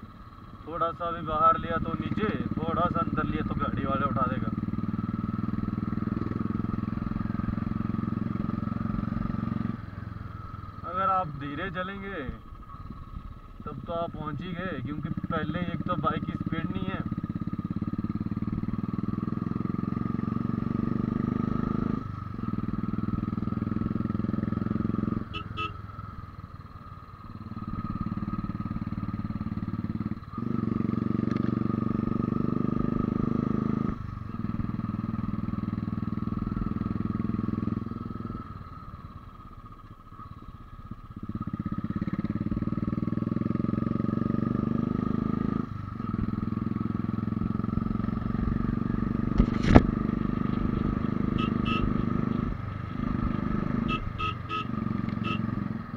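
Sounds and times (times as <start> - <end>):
motorcycle engine running: 0.0 - 55.9
rider speaking: 0.6 - 4.8, 10.8 - 12.6, 13.6 - 17.2.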